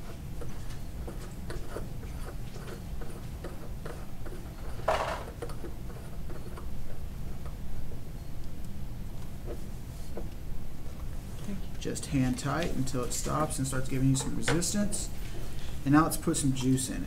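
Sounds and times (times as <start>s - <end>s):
scraping rub: 0.0s - 6.7s
low steady hum: 0.0s - 17.0s.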